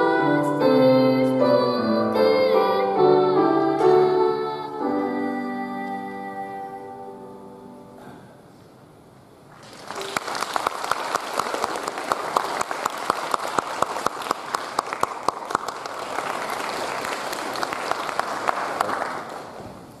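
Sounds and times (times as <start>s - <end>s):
audience applauding: 9.5s - 19.8s.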